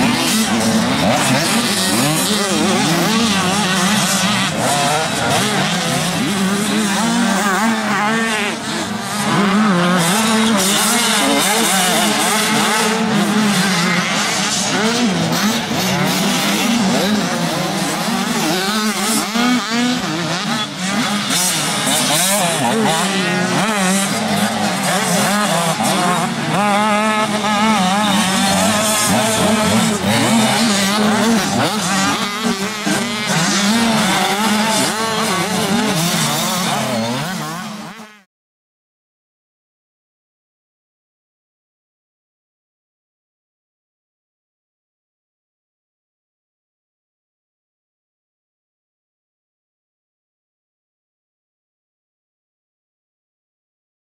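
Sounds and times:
motocross bikes revving: 0:00.0 - 0:38.3.

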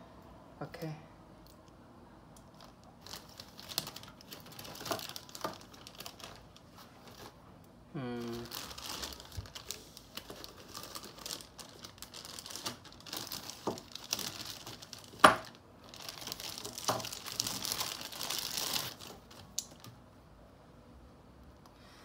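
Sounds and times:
plastic bags crinkling: 0:02.5 - 0:07.4, 0:08.0 - 0:20.0.

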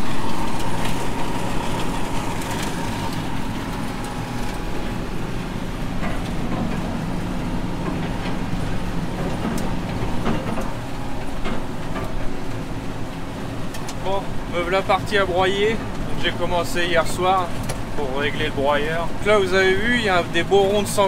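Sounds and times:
tractor engine running: 0:00.0 - 0:21.0
knocks and clatter: 0:05.8 - 0:12.7.

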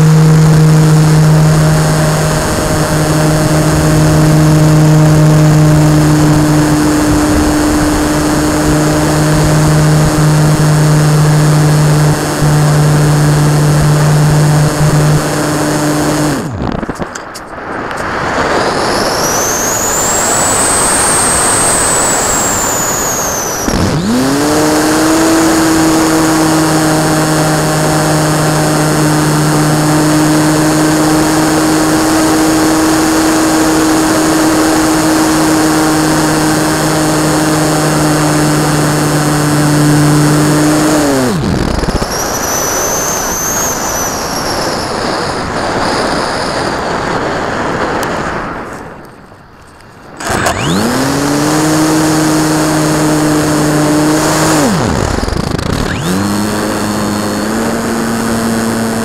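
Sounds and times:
rushing air noise: 0:00.0 - 0:25.9
model plane motor whine: 0:00.0 - 0:49.2, 0:50.1 - 0:59.0.

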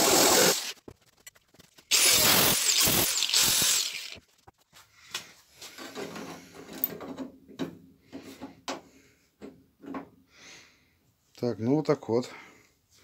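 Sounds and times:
angle grinder on steel: 0:01.9 - 0:04.2.

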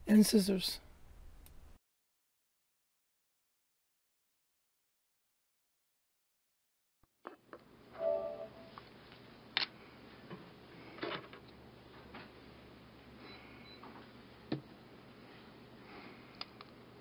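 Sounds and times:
brief tone: 0:08.0 - 0:08.8, 0:13.2 - 0:13.8.

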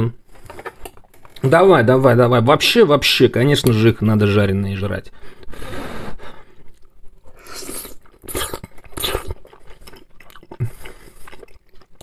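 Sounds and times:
person chewing food: 0:00.4 - 0:01.4, 0:06.4 - 0:12.0.

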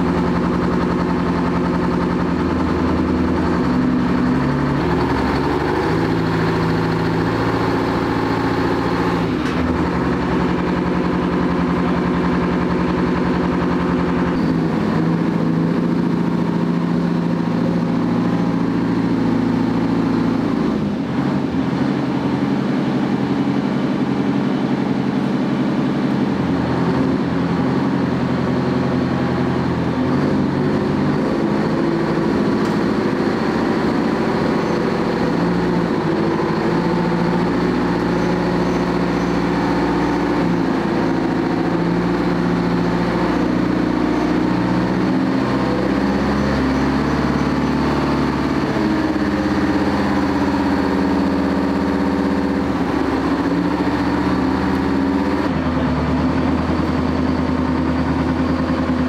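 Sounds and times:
tank engine running: 0:00.0 - 0:59.0.

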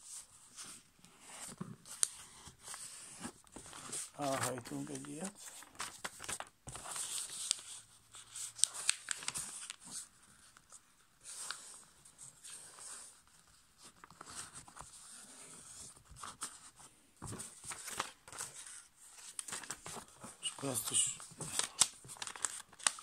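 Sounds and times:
paper rustling and crinkling: 0:00.1 - 0:23.0
sharp paper ticks: 0:08.6 - 0:09.8, 0:21.5 - 0:23.0.

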